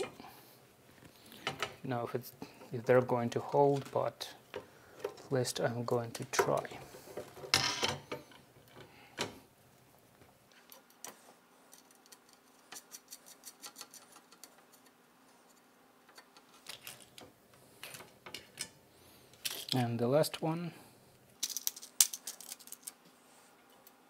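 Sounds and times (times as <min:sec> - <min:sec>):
small metal parts clicking: 0:21.4 - 0:23.0.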